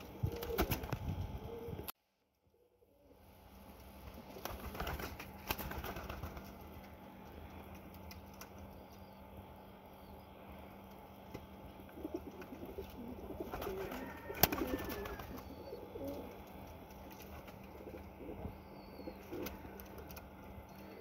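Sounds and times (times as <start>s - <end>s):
pigeon cooing: 1.3s - 1.9s, 11.9s - 16.5s.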